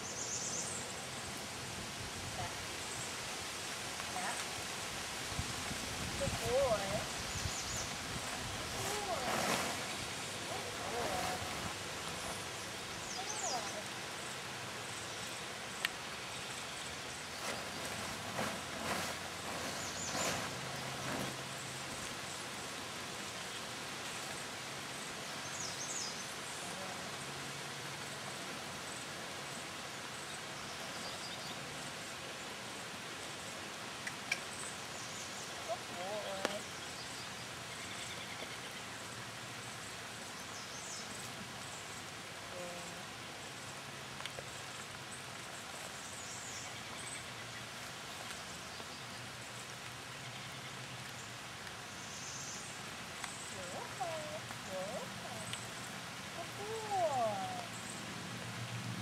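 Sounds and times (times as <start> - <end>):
outdoor background hiss: 0.0 - 59.0
plastic tarp rustling: 8.2 - 11.8, 17.4 - 21.9.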